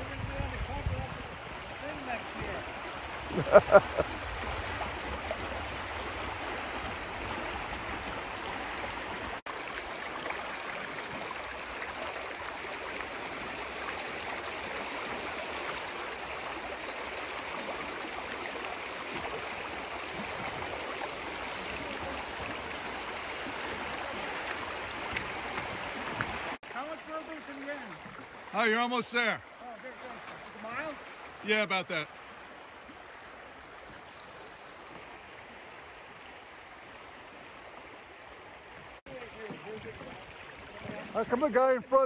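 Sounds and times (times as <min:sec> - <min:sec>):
creek water rushing over riffles: 0:00.0 - 0:42.0.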